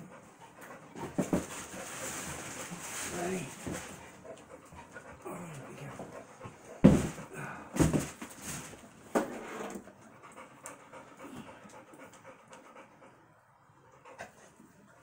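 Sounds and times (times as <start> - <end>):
people breathing heavily and grunting: 4.6 - 8.1, 11.0 - 12.0.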